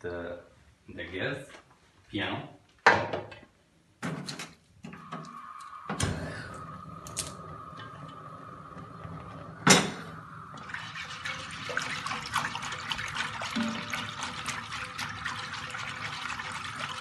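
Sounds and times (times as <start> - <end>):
gas burner clicking and igniting: 5.0 - 10.2
gas burner hissing: 5.0 - 11.8.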